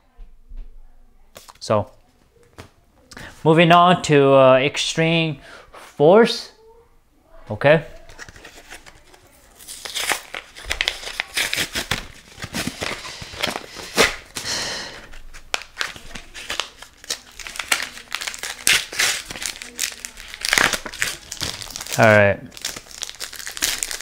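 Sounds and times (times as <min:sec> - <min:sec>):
foil wrapper crinkling and tearing: 0:08.0 - 0:24.0.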